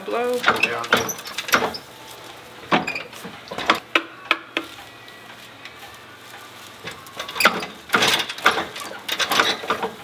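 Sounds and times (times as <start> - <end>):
broom winder clicks and knocks: 7.3 - 10.0.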